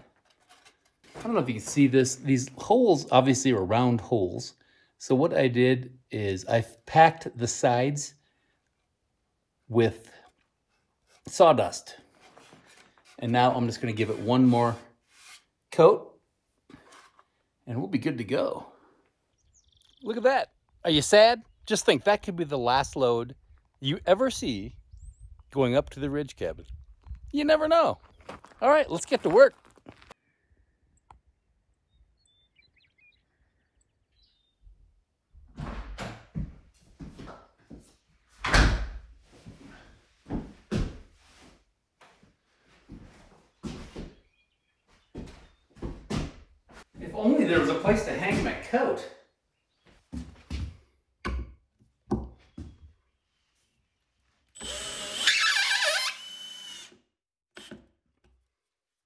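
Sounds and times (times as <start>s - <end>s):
bird chirps: 19.3s - 20.1s, 31.7s - 34.7s
cordless drill driving screw: 54.6s - 57.0s, 57.6s - 57.8s.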